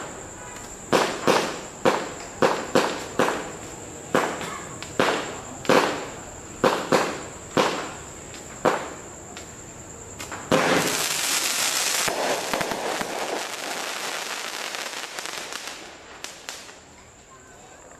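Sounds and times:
firework hissing and crackling: 0.0s - 17.9s
firework bangs: 0.9s - 8.0s, 8.6s - 9.0s, 10.2s - 16.8s.

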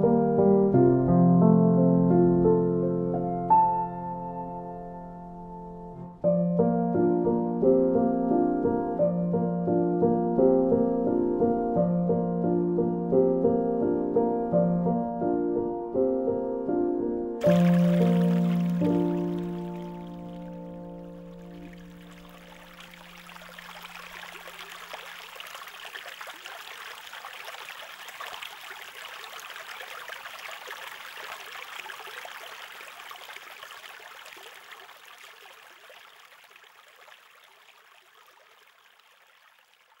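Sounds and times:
music: 0.0s - 23.3s
fountain water splashing into pond: 17.4s - 40.0s.

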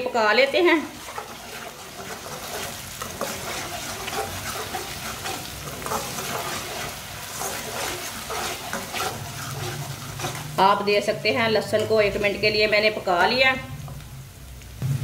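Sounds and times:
onion and garlic sizzling in oil: 0.0s - 15.0s
spatula scraping a metal pan: 0.6s - 10.8s.

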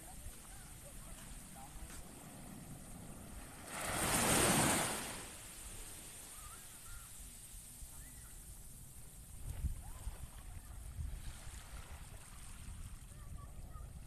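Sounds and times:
small wave breaking on beach: 0.0s - 7.1s, 9.4s - 13.2s
low surf wash: 0.0s - 14.0s.

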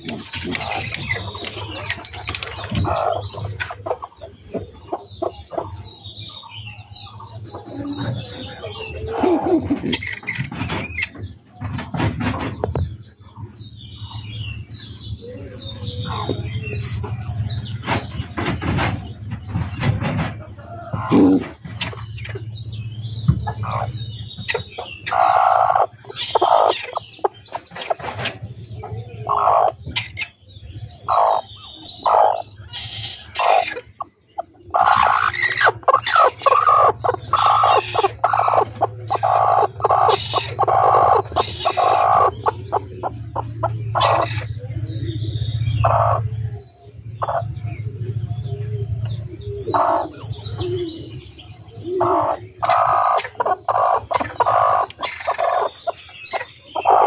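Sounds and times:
hen clucking: 0.0s - 11.2s, 15.8s - 22.5s, 23.3s - 30.3s, 31.0s - 57.0s
steady low hum: 12.9s - 57.0s.

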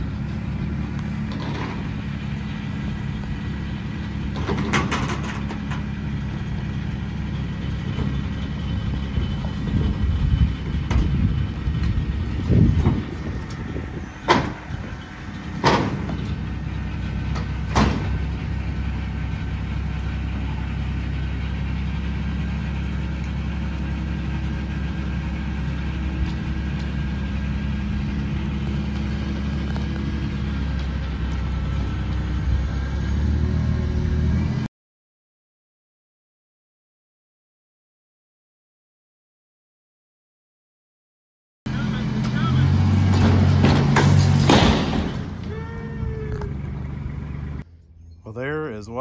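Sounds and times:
tractor engine running: 0.0s - 34.7s, 41.7s - 49.0s
sharp bangs: 15.6s - 16.3s, 42.2s - 45.5s.

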